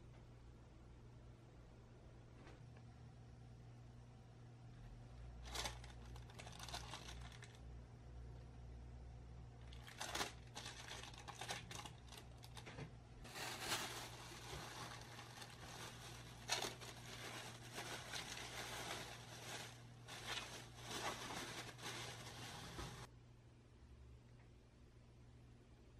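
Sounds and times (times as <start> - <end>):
plastic bag crinkling: 5.4 - 7.6, 9.6 - 23.1.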